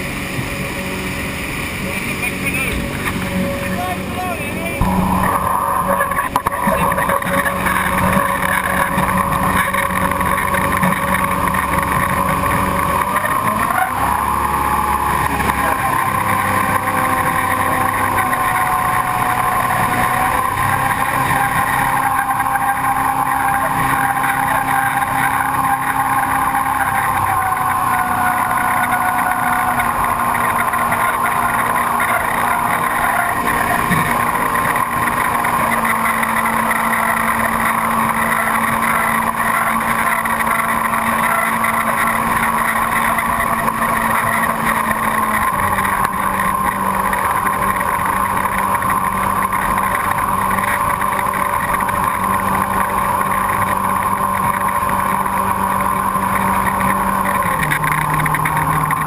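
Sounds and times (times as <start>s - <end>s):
boat engine running hard: 0.0s - 59.0s.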